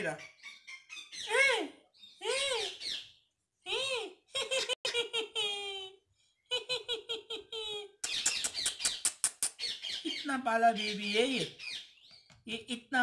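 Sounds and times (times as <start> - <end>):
parakeet calling: 0.0 - 3.2, 9.6 - 12.3.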